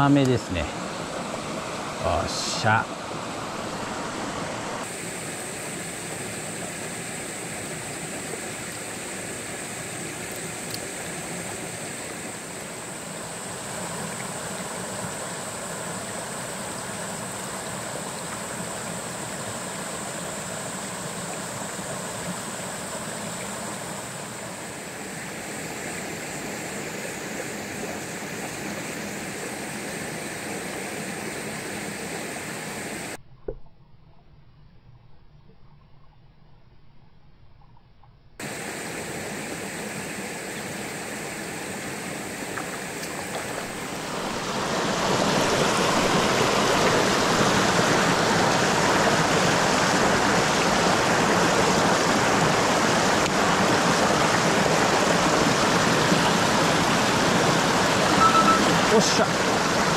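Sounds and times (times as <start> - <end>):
stream rushing over rocks: 0.0 - 33.1, 38.4 - 59.9
high-pitched hiss: 58.2 - 59.3.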